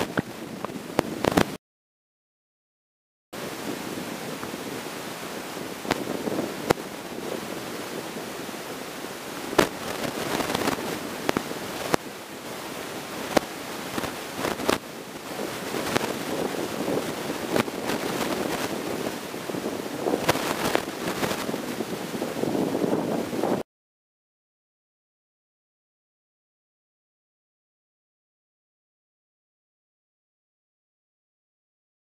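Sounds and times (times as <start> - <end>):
sharp underwater clicks and pops: 1.0 - 1.6, 9.6 - 12.0, 13.3 - 14.8, 20.2 - 21.5
underwater water rushing: 3.4 - 23.1.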